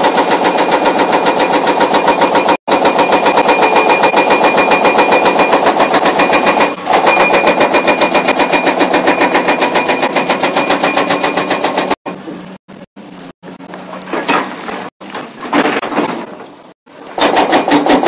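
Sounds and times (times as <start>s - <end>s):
hydraulic breaker hammering: 0.0s - 12.0s, 17.0s - 18.0s.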